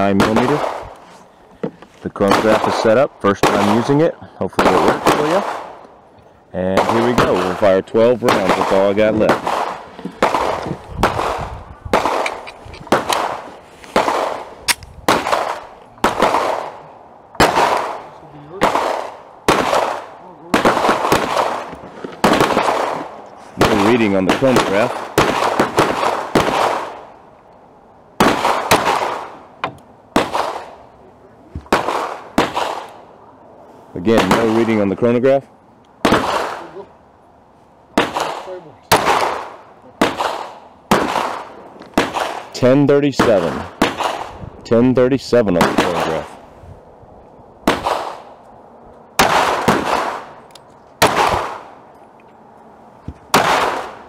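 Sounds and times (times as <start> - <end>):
pistol shots with echo: 0.0 - 1.0, 2.2 - 5.8, 6.7 - 16.8, 17.4 - 27.1, 28.2 - 29.4, 30.1 - 30.8, 31.7 - 33.1, 34.1 - 34.9, 36.0 - 36.8, 38.0 - 42.6, 43.2 - 44.4, 45.5 - 46.4, 47.6 - 48.3, 49.2 - 50.4, 51.0 - 51.8, 53.3 - 54.0.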